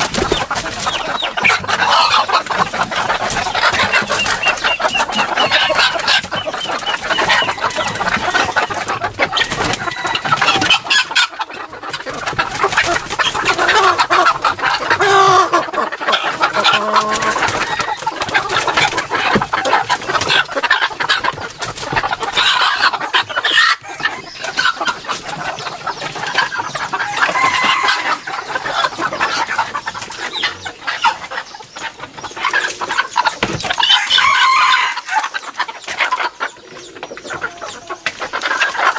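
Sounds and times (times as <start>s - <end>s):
roosters clucking and squawking: 0.0s - 38.9s
rooster crowing: 27.0s - 28.3s, 33.9s - 35.1s.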